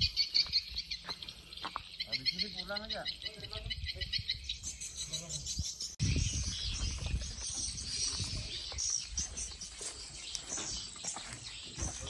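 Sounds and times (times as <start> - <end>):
birds chirping: 0.0 - 12.0
insects chirping: 0.0 - 12.0.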